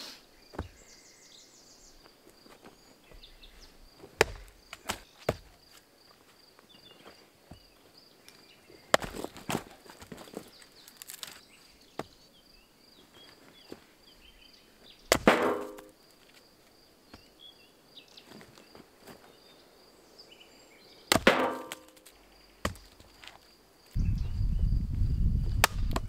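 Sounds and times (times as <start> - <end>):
bird chirps: 0.3 - 2.1
axe chopping firewood: 4.0 - 5.6, 8.9 - 9.7, 15.1 - 15.9, 21.1 - 23.1.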